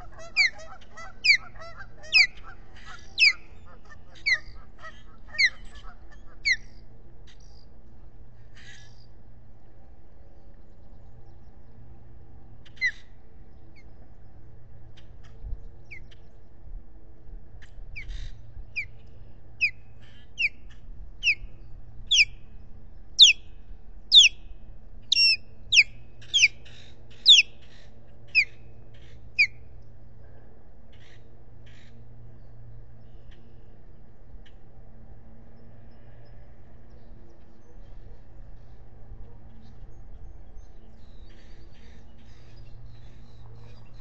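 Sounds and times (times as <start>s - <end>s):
osprey whistled calls: 0.0s - 2.5s, 3.2s - 3.4s, 22.1s - 22.3s, 23.2s - 23.4s, 24.1s - 24.4s, 25.1s - 26.6s, 27.2s - 27.5s.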